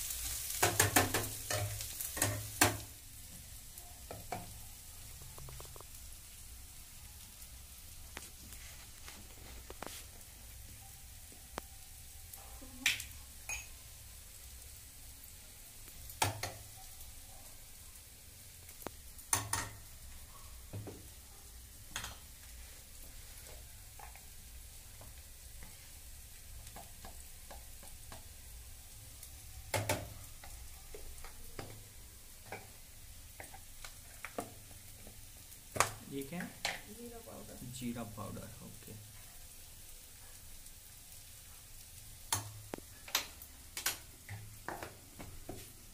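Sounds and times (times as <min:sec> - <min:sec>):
food sizzling in a pan: 0:00.0 - 0:45.9
spice containers clicking and knocking: 0:05.2 - 0:06.0.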